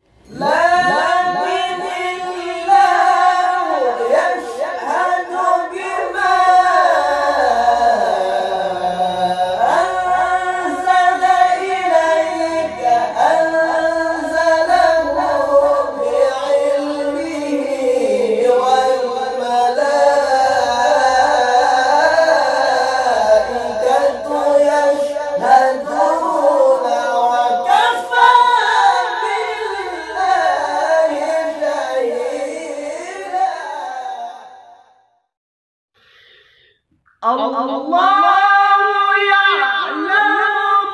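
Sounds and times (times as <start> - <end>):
men singing unaccompanied: 0.2 - 34.6, 37.9 - 40.9.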